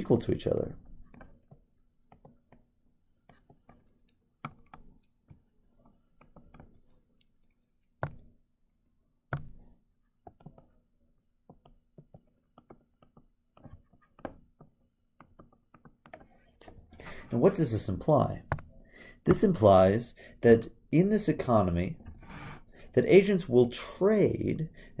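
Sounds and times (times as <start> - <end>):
stylus tapping on tablet screen: 0.9 - 8.4, 9.3 - 10.8, 11.4 - 16.5, 18.4 - 18.8.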